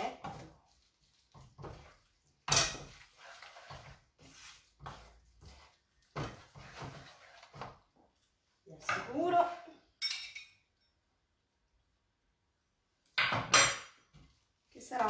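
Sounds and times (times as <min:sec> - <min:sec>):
wooden spoon stirring in a pan: 0:00.0 - 0:09.9, 0:14.0 - 0:15.0.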